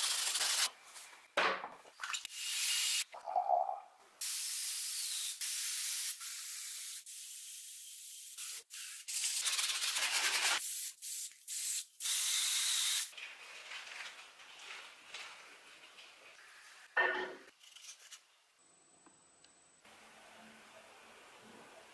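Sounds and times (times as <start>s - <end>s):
spray gun hissing: 4.2s - 9.2s.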